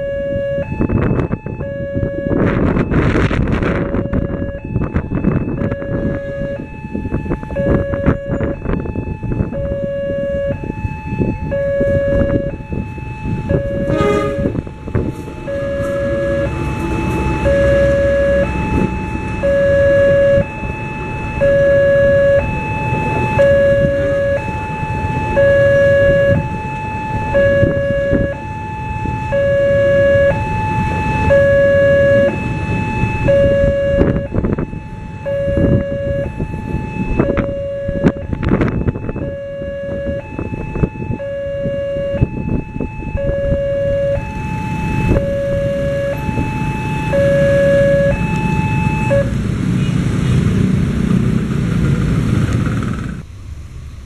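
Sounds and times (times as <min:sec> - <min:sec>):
two-tone crossing alarm chime: 0:00.0 - 0:49.3
train rumbling past: 0:12.7 - 0:25.5, 0:46.1 - 0:54.0.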